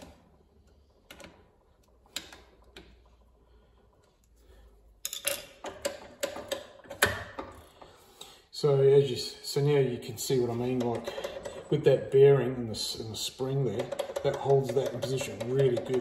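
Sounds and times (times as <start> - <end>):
metal lock bar clicking and knocking: 5.0 - 7.6, 13.8 - 16.0
screwdriver clicking on metal: 13.7 - 16.0.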